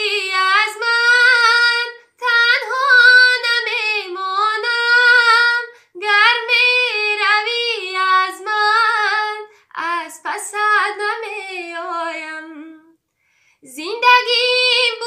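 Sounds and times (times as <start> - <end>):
woman singing unaccompanied: 0.0 - 13.0, 13.6 - 15.0.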